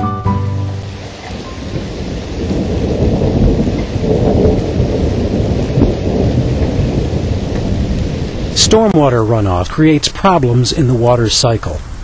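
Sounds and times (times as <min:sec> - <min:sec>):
steady rain: 0:00.0 - 0:12.0
rolling thunder: 0:00.9 - 0:09.7.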